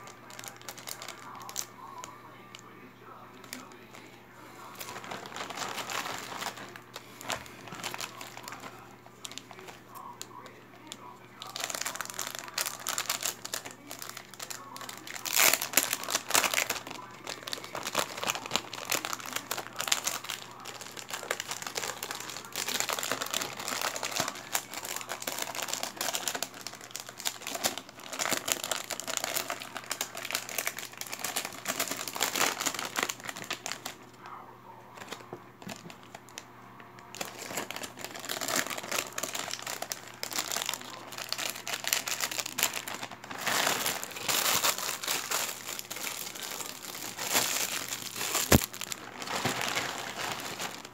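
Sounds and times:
plastic zip bags crinkling: 0.0 - 2.6, 3.4 - 34.1, 35.0 - 36.4, 37.1 - 50.9.

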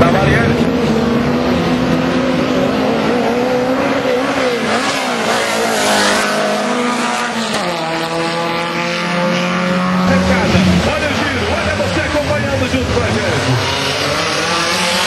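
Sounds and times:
racing car engines revving: 0.0 - 15.0.

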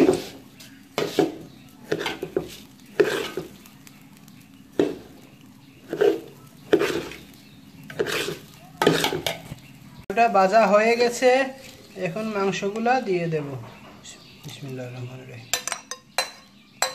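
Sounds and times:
rice frying in oil: 0.0 - 13.6
spoon scraping metal pot: 1.0 - 3.6, 5.8 - 9.6.

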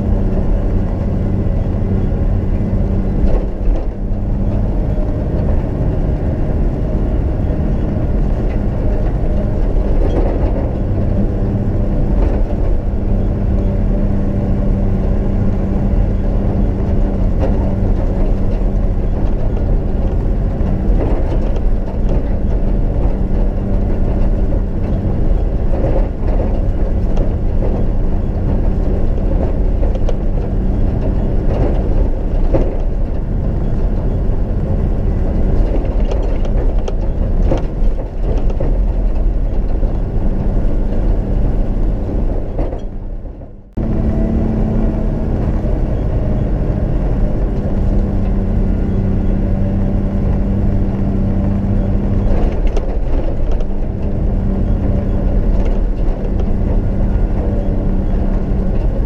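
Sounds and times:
vehicle engine drone: 0.0 - 59.0
vehicle body knocks and rattles: 16.0 - 44.0.

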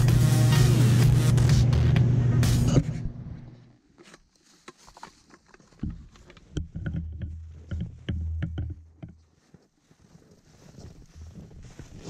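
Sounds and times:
footsteps crunching in snow: 4.0 - 5.8, 9.2 - 12.0.

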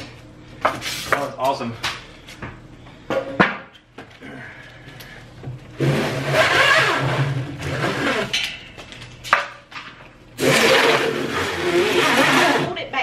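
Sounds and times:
plastic strap rasping scrapes: 10.4 - 12.7.

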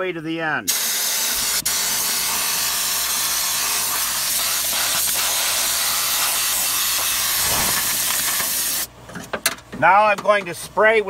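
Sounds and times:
spray gun hissing: 0.7 - 8.9.

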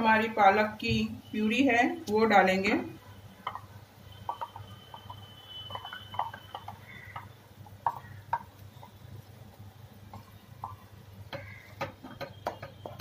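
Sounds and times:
spatula stirring puree: 3.4 - 13.0
steel utensils tapping a pan: 10.1 - 13.0.

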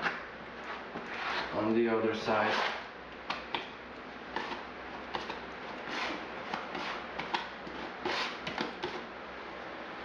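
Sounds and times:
putty knife scraping: 0.0 - 1.6, 2.4 - 3.5, 4.3 - 9.1.

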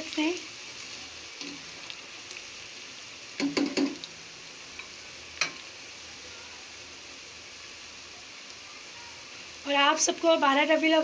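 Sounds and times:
onions sizzling in oil: 0.0 - 11.0
spatula knocking against pan: 3.4 - 4.0.

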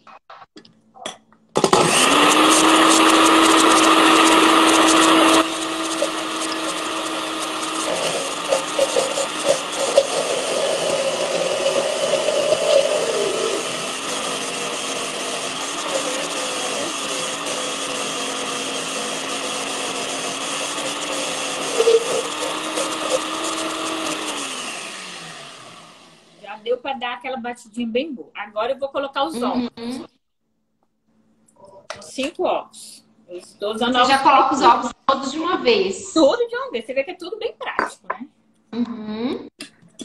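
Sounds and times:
blender churning batter: 1.6 - 26.6.

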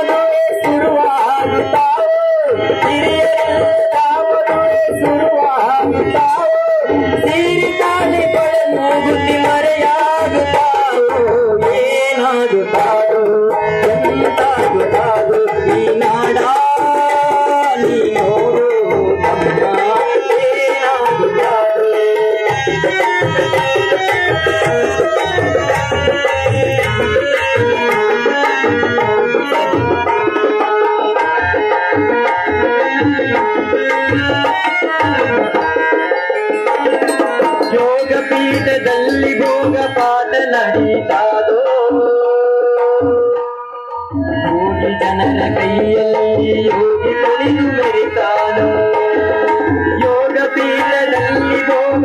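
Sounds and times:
hand drum rhythm: 0.0 - 52.0
harmonium melody: 0.0 - 52.0.

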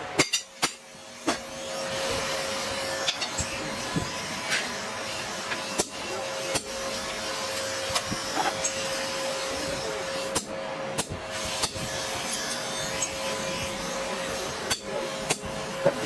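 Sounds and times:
forge air blower whirring: 0.0 - 16.0
hammer striking chisel on metal: 0.2 - 1.5, 14.7 - 16.0.

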